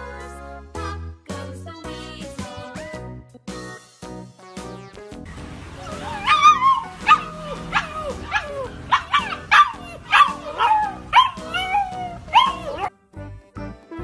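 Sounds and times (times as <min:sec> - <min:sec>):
background music: 0:00.0 - 0:14.0
puppy howling and yelping: 0:05.8 - 0:12.9.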